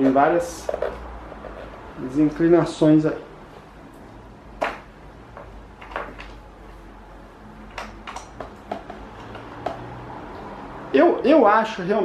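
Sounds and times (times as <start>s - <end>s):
plastic fan clicks and knocks: 4.6s - 6.4s, 7.6s - 9.9s.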